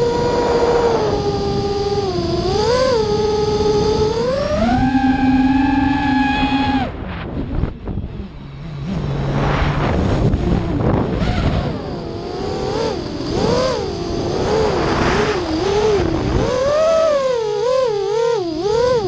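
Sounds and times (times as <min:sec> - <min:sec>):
rushing noise: 0:00.0 - 0:01.6, 0:04.8 - 0:12.1
quadcopter motors whining: 0:00.0 - 0:19.0.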